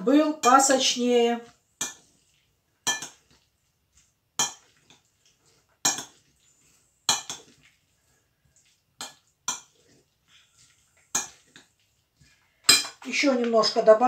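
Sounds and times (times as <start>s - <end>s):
metal spoon clinking glass bowl: 2.8s - 3.2s, 4.4s - 4.7s, 5.8s - 6.2s, 7.1s - 7.6s, 9.0s - 9.8s, 11.1s - 11.7s, 12.6s - 13.0s.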